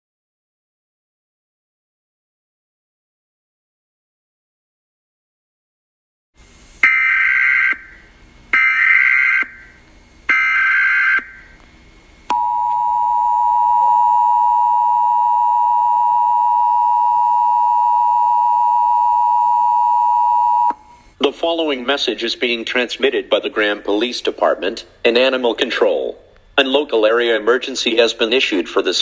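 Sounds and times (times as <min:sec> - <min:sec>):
two-tone attention signal: 0:12.3 - 0:20.9.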